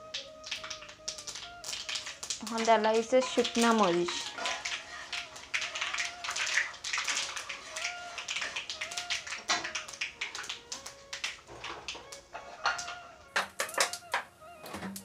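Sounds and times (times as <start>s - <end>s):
metal spoon scraping a wok: 3.0s - 5.5s.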